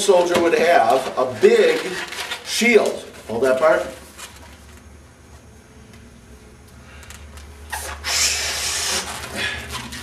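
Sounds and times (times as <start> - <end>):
short puff of air: 7.7 - 9.7
air hissing into a balloon: 7.7 - 9.8.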